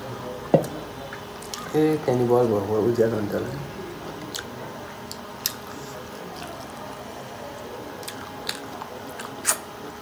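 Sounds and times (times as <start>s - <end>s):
people chewing: 4.2s - 10.0s.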